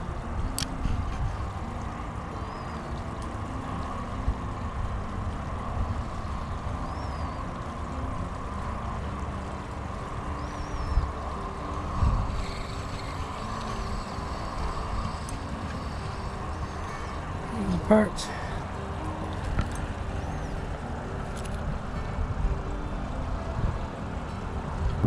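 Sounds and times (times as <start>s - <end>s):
low outdoor rumble: 0.0s - 25.0s
small bird chirping: 6.8s - 7.4s, 10.3s - 11.2s.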